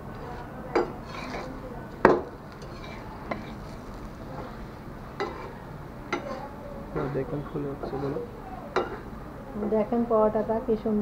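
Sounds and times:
metal spatula clacking on griddle: 0:00.7 - 0:03.8, 0:05.2 - 0:05.5, 0:06.1 - 0:06.4.

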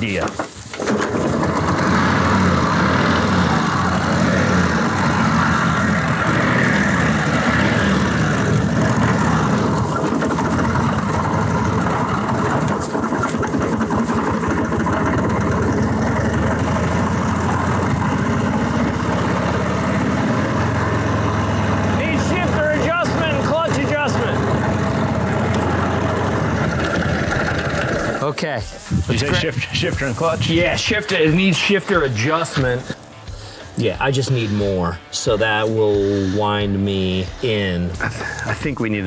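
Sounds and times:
motorcycle engine idling: 0:08.2 - 0:28.2.

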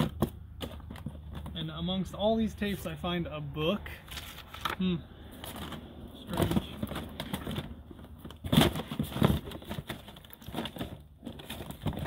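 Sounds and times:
plastic cases clacking: 0:00.0 - 0:02.2, 0:05.4 - 0:12.0.

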